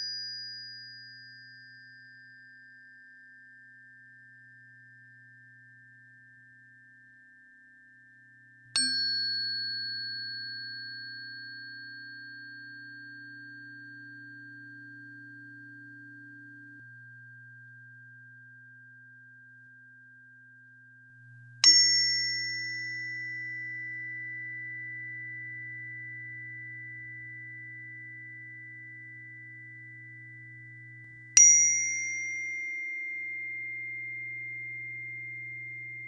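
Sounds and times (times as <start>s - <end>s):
bell-like metallic tone struck: 0.0s - 7.2s, 8.6s - 19.8s, 20.9s - 36.0s
faint low hum: 11.2s - 36.0s.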